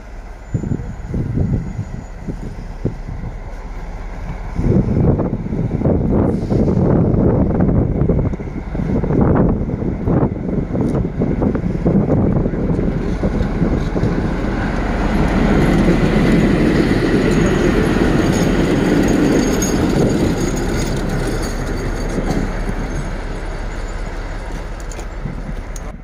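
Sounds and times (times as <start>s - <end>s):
diesel locomotive engine: 0.0s - 26.0s
wheels rolling over rails: 12.7s - 25.9s.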